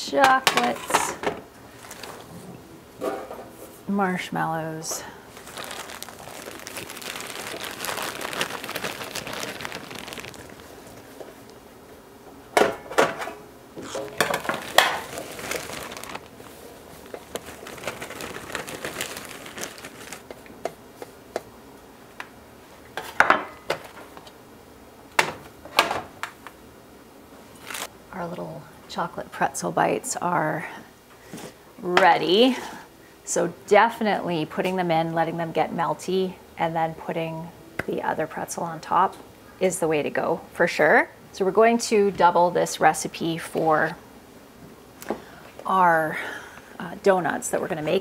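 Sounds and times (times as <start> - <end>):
plastic bag crinkling: 1.7 - 2.3, 5.2 - 11.5, 14.0 - 20.3, 27.6 - 27.9.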